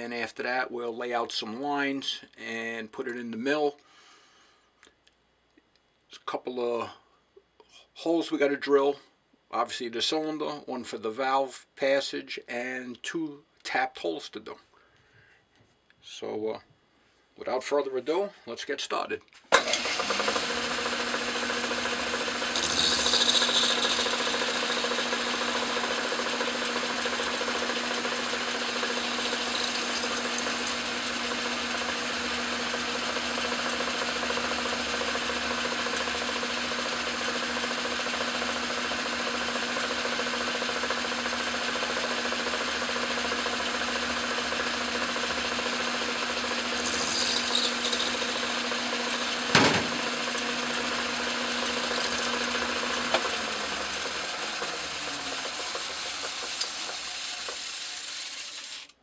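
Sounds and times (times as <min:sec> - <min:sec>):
metal lathe humming: 0:19.6 - 0:58.8
cutting tool hissing on brass: 0:22.5 - 0:25.2, 0:46.7 - 0:48.6.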